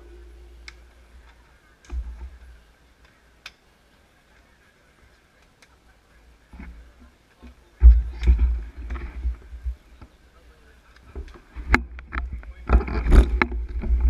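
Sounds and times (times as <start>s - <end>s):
low microphone rumble: 0.0s - 2.8s, 7.6s - 14.0s
bike and cleat clicks: 3.0s - 3.6s.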